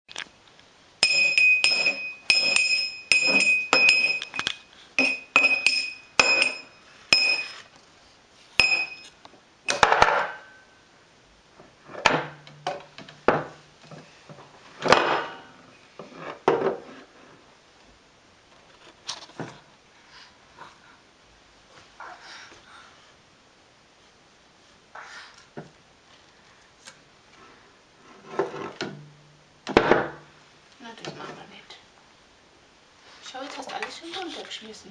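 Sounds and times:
glass knocking on table ringing: 0:01.0 - 0:04.4, 0:05.0 - 0:07.6, 0:08.6 - 0:09.1.

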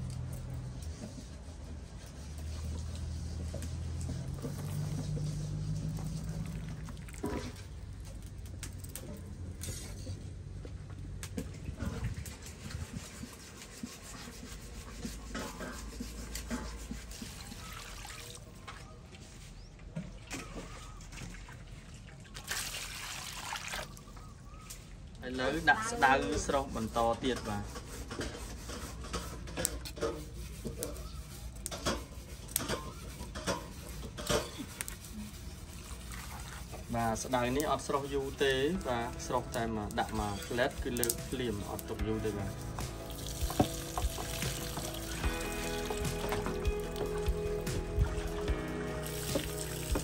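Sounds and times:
small crackles and clicks: 0:07.1 - 0:09.9.

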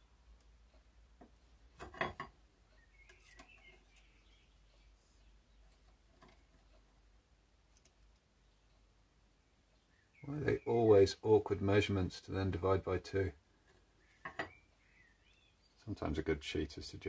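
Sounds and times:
clicks and knocks of metal tools: 0:01.8 - 0:02.4, 0:14.2 - 0:14.6
faint bird chirps: 0:02.6 - 0:07.1, 0:07.8 - 0:08.9, 0:09.7 - 0:11.2, 0:13.5 - 0:16.1.

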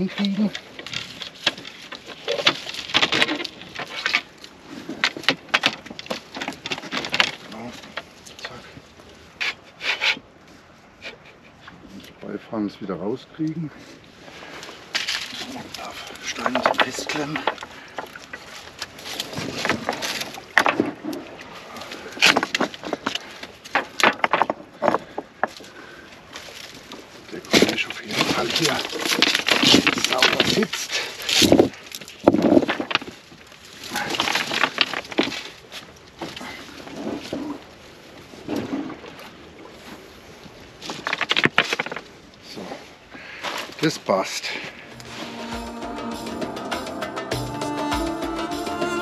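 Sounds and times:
stones knocking and scraping: 0:14.9 - 0:21.2, 0:22.2 - 0:25.7, 0:27.4 - 0:33.3, 0:33.9 - 0:35.6, 0:40.9 - 0:42.2.

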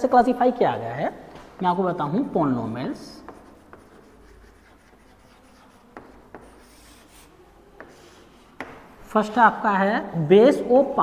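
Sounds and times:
chalk scratching on chalkboard: 0:03.0 - 0:08.9
chalk tapping on board: 0:03.1 - 0:08.9.

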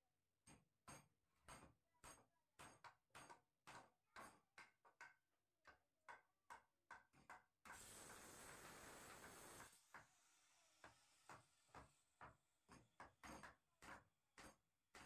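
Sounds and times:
hammers striking wooden frame: 0:10.8 - 0:15.0.

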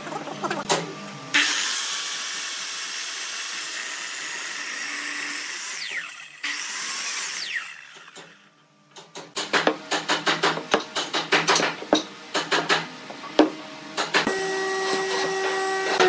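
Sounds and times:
miter saw cutting wood: 0:01.3 - 0:08.5, 0:14.2 - 0:16.0.

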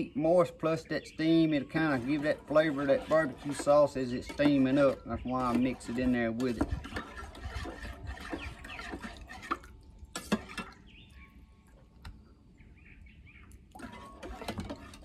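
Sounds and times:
spoon scraping in a mug: 0:01.6 - 0:10.8.

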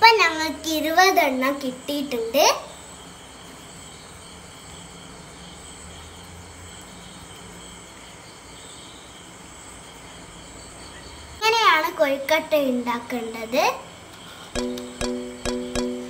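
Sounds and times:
high-pitched tones: 0:14.6 - 0:16.0.

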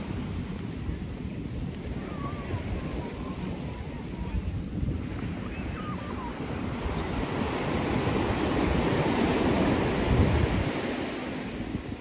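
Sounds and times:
ocean surf washing up: 0:00.0 - 0:12.0
wind rumbling on microphone: 0:00.0 - 0:12.0.

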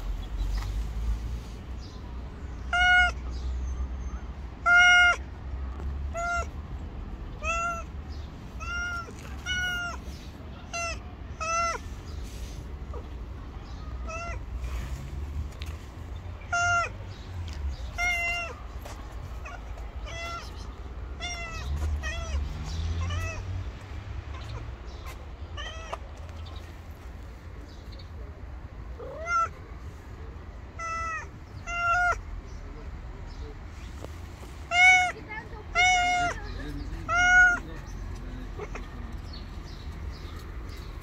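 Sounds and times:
cat meowing: 0:02.6 - 0:03.3, 0:04.6 - 0:05.3, 0:06.1 - 0:06.6, 0:07.3 - 0:11.9, 0:13.9 - 0:14.5, 0:16.5 - 0:16.9, 0:17.8 - 0:18.6, 0:19.3 - 0:23.4, 0:25.6 - 0:26.0, 0:29.0 - 0:29.6, 0:30.8 - 0:32.2, 0:34.7 - 0:39.0.

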